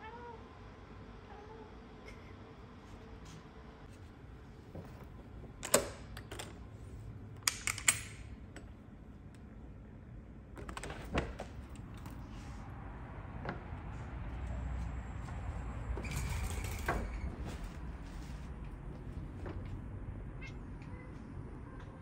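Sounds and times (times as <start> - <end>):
door handle and latch clicking: 5.6 - 6.6, 7.4 - 8.6.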